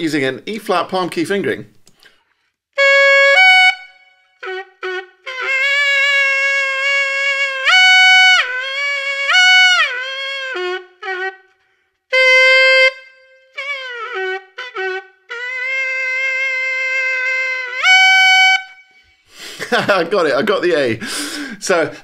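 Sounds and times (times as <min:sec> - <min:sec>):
saxophone bending notes: 0:02.8 - 0:19.3.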